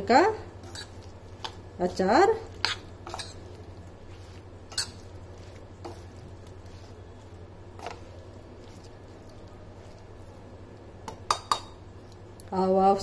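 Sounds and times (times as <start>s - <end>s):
wet masala squishing: 0.3s - 12.6s
spoon knocking against pan: 11.0s - 11.8s.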